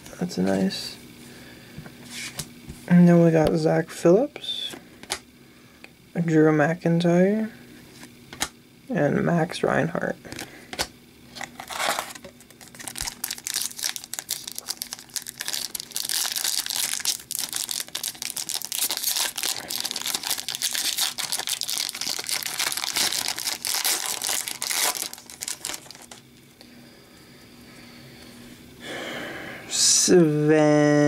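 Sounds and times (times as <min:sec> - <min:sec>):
foil wrapper crinkling: 0:11.4 - 0:26.4.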